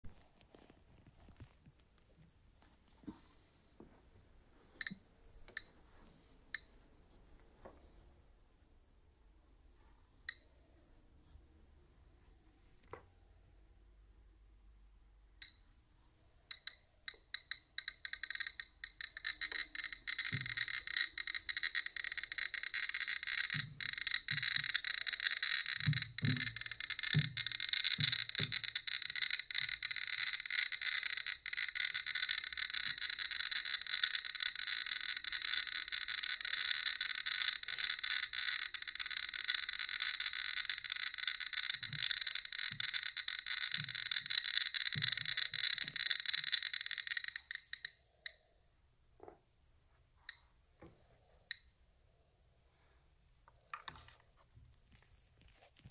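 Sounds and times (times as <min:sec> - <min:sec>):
geiger counter clicking: 0:04.8 - 0:05.9, 0:06.5 - 0:06.8, 0:10.2 - 0:10.7, 0:15.3 - 0:15.8, 0:16.4 - 0:48.5, 0:51.5 - 0:51.7.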